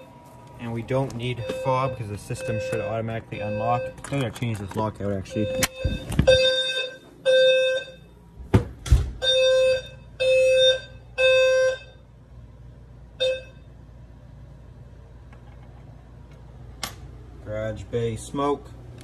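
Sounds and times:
fire alarm beeping: 0.8s - 8.2s, 9.2s - 12.2s, 13.1s - 13.8s.

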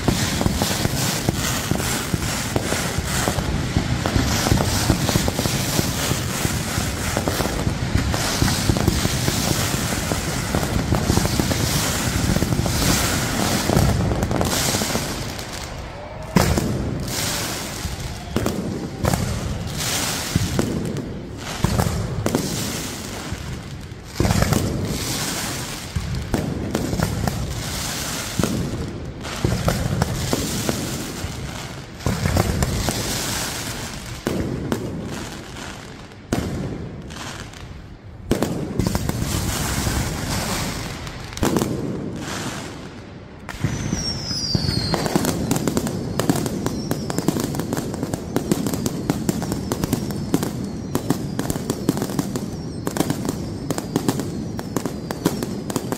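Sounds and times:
fireworks booms: 0.0s - 55.9s
fireworks crackling and popping: 0.0s - 55.9s
falling whistle: 43.6s - 47.4s.

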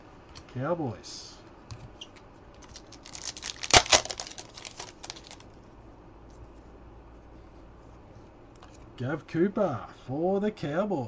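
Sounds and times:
wrapper tearing and crinkling: 2.6s - 5.5s.

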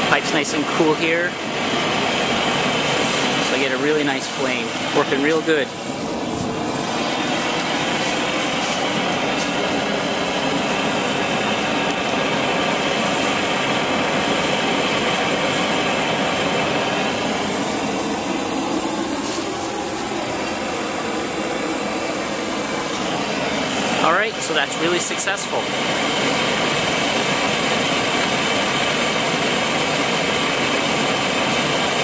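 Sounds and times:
propane burner rushing: 0.0s - 32.0s.

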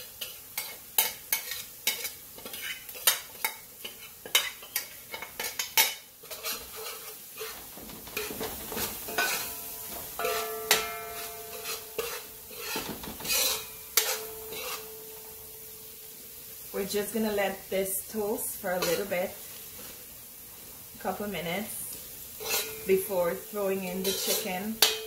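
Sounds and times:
metal spoon scraping a pan: 0.0s - 15.6s, 18.7s - 19.9s, 22.3s - 25.0s
paste sizzling in oil: 0.0s - 25.0s.

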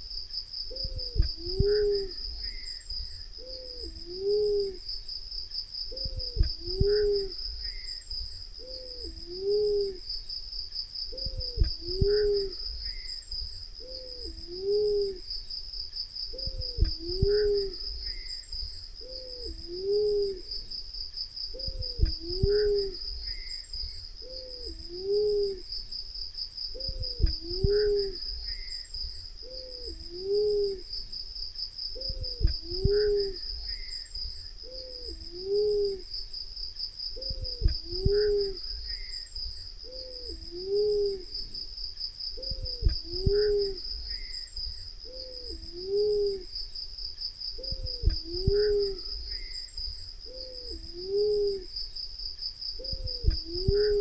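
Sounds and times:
high insect chirring: 0.0s - 54.0s
dove cooing: 0.7s - 2.7s, 3.4s - 4.9s, 5.9s - 7.9s, 8.6s - 10.1s, 11.1s - 13.1s, 13.8s - 15.3s, 16.3s - 18.3s, 19.0s - 20.7s, 21.5s - 23.5s, 24.2s - 25.7s, 26.7s - 28.7s, 29.4s - 30.9s, 32.0s - 33.9s, 34.6s - 36.1s, 37.2s - 39.1s, 39.8s - 41.6s, 42.4s - 44.3s, 45.0s - 46.5s, 47.6s - 49.5s, 50.2s - 51.7s, 52.8s - 54.0s.

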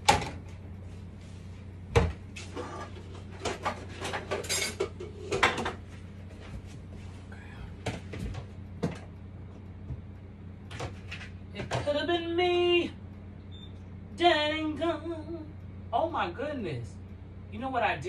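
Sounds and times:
steady low hum: 0.0s - 18.0s
dishes clinking and knocking: 3.4s - 5.8s.

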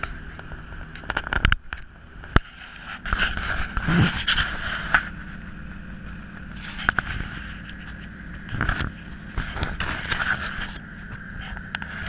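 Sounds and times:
car engine running: 0.0s - 12.0s
hand rubbing camera microphone: 2.4s - 12.0s.

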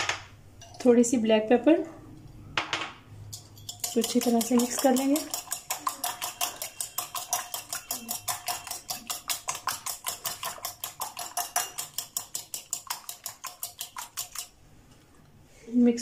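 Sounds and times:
fork clicking against glass bowl: 3.3s - 14.6s.

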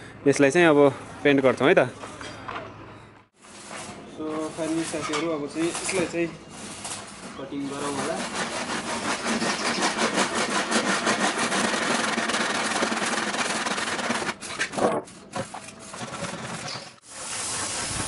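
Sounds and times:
hand saw cutting wood: 7.6s - 18.0s.

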